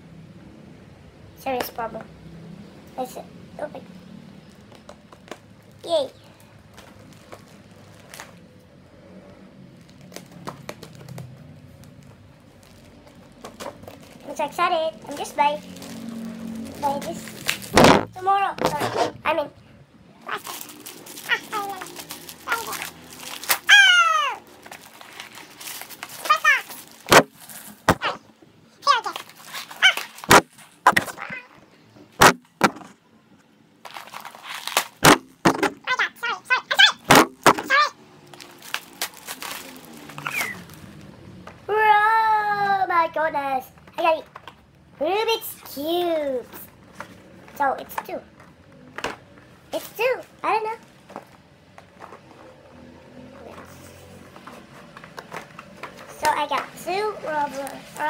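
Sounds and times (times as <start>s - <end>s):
plastic packaging crinkling: 4.4s - 8.6s, 9.7s - 18.8s, 20.3s - 28.2s, 28.9s - 31.5s, 33.8s - 35.8s, 37.2s - 41.1s.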